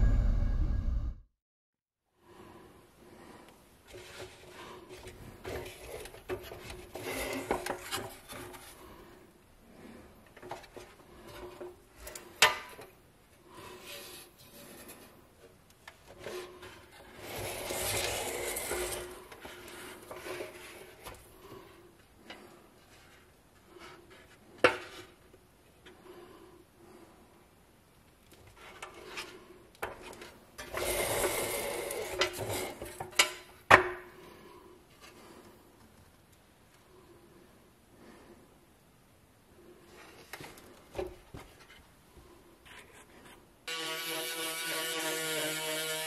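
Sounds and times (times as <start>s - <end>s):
metal toy truck scraping: 5.6s - 8.7s, 16.2s - 21.0s, 30.1s - 33.0s.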